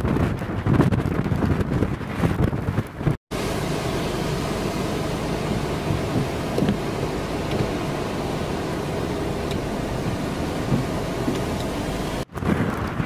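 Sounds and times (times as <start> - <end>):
heavy rain and wind hiss: 3.3 - 13.0.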